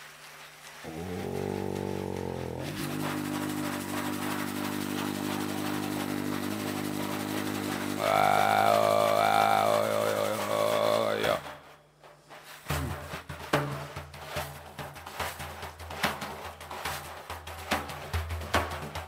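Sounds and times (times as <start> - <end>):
man's low vocal drone: 0.8 - 11.6, 12.7 - 13.0.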